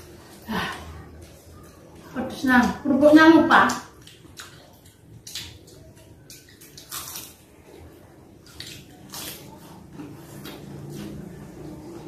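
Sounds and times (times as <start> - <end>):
wet chewing and lip smacks: 3.8 - 7.5.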